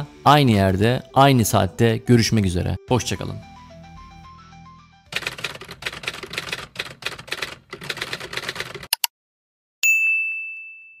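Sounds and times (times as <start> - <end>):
typewriter keystrokes clattering: 5.1 - 9.0
bell ding: 9.8 - 11.0.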